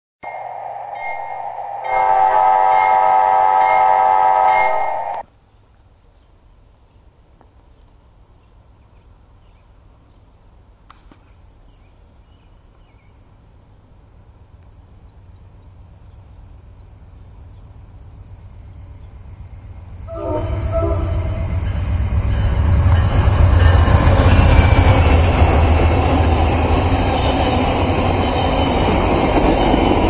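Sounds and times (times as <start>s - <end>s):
locomotive air horn: 0.2s - 5.2s, 20.1s - 21.6s
train rumbling past: 0.2s - 5.3s, 14.8s - 30.0s.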